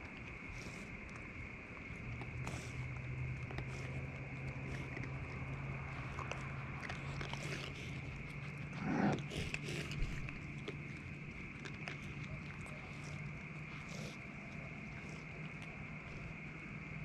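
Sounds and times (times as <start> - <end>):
raccoons chewing: 0.0 - 17.0.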